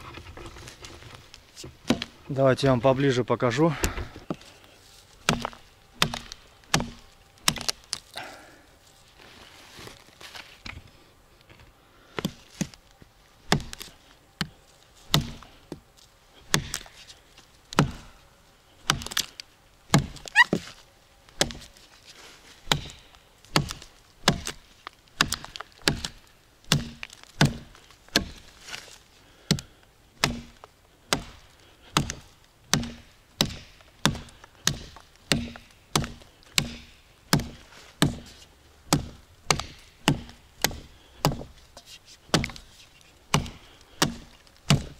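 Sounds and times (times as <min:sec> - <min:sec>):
axe chopping into tree: 0:01.6 - 0:02.2, 0:05.2 - 0:08.0, 0:13.5 - 0:14.5, 0:15.1 - 0:15.4, 0:16.5 - 0:16.9, 0:17.7 - 0:18.1, 0:18.8 - 0:19.3, 0:19.9 - 0:20.7, 0:21.4 - 0:21.7, 0:22.6 - 0:41.6, 0:42.3 - 0:42.7, 0:43.3 - 0:44.9.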